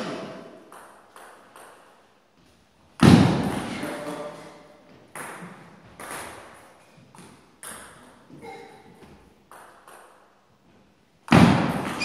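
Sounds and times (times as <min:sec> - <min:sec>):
table tennis ball bouncing: 0:00.0 - 0:02.2, 0:05.1 - 0:10.5.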